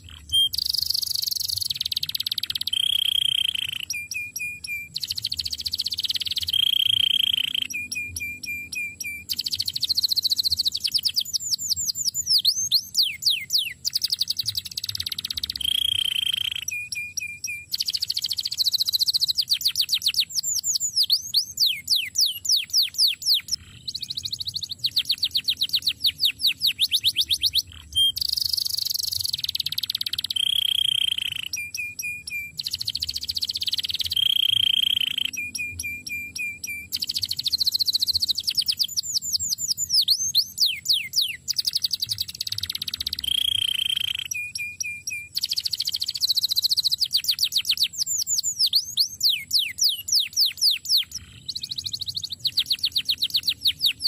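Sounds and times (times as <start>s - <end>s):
canary singing trills: 0.0s - 54.0s.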